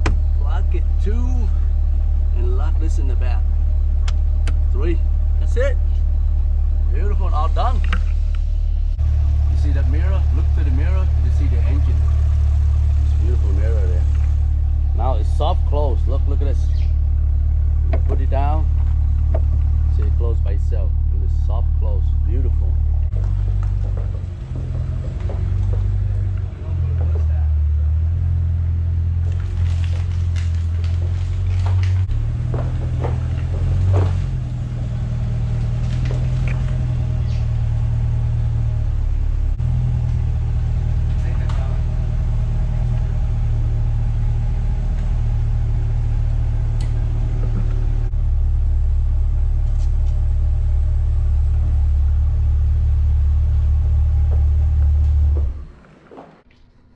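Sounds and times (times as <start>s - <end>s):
car engine idling: 0.0s - 56.9s.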